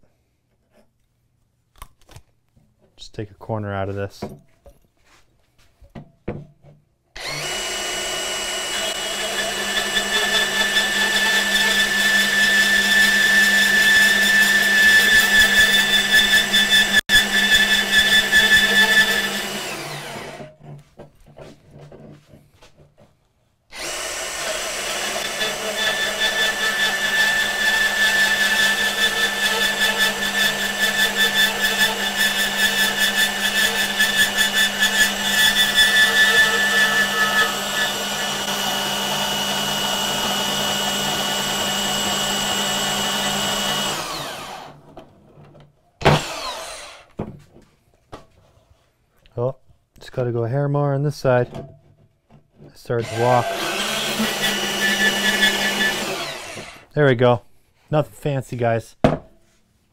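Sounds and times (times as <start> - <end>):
band saw cutting steel: 7.2 - 20.5, 23.7 - 44.8, 46.0 - 47.1, 53.0 - 56.9.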